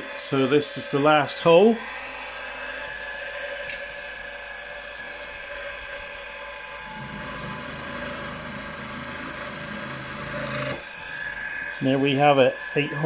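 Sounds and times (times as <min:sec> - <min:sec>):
milling machine spindle whine: 0:00.0 - 0:13.0
drill bit buzzing into metal: 0:06.8 - 0:13.0.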